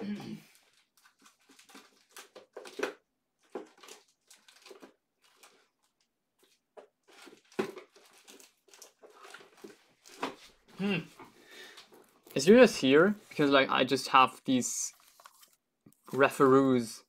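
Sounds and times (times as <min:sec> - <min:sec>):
plastic packaging crinkling: 0:00.5 - 0:10.6, 0:14.8 - 0:16.5.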